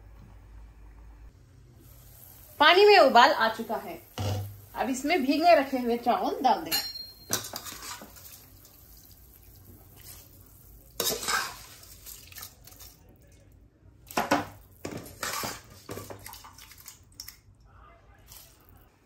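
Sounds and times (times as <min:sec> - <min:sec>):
rice clattering and splashing: 0:07.3 - 0:13.2, 0:14.0 - 0:17.4.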